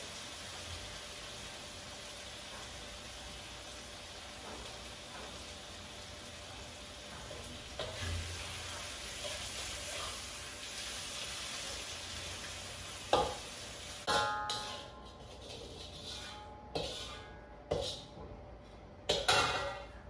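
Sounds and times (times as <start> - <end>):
food sizzling in a wok: 0.0 - 18.2
spatula knocking on pan: 13.1 - 13.4, 14.1 - 14.8
sharp metal clanks: 14.0 - 15.1.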